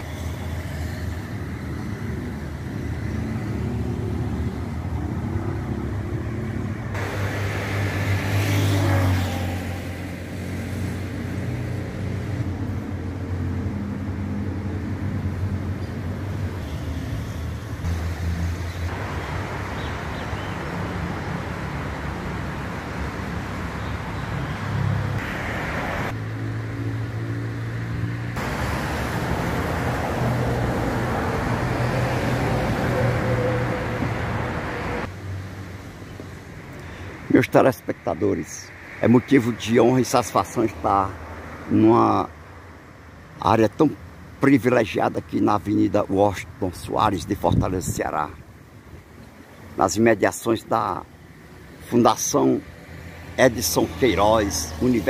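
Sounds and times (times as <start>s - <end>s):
vehicle passing close: 0.0s - 35.9s
road traffic hum: 0.0s - 55.0s.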